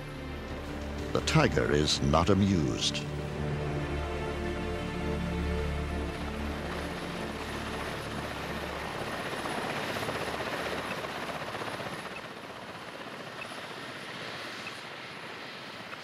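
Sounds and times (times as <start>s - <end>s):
helicopter engine noise: 0.0s - 16.0s
helicopter rotor chop: 5.8s - 16.0s.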